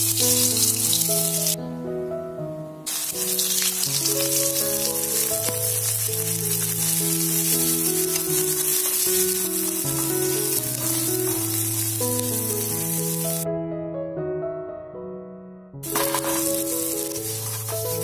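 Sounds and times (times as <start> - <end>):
garlic sizzling in hot oil: 0.0 - 1.6, 2.9 - 13.4, 15.8 - 18.0.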